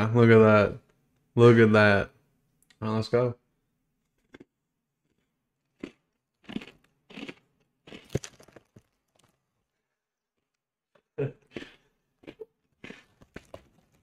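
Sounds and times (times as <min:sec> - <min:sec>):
person chewing crunchy cracker: 0:04.0 - 0:09.4, 0:10.3 - 0:14.0.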